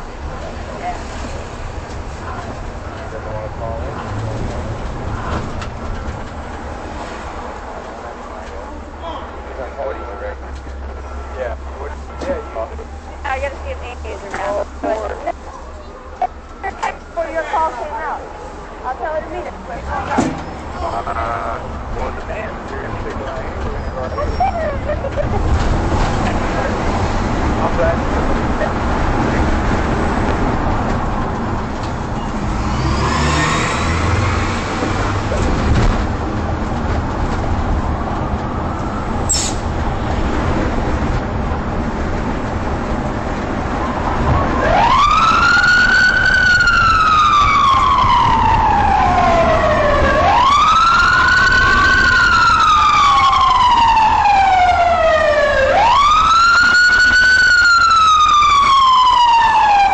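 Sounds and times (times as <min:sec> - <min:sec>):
car driving in traffic: 0:00.0 - 0:59.9
police siren wailing: 0:37.1 - 0:39.3, 0:43.6 - 0:59.9.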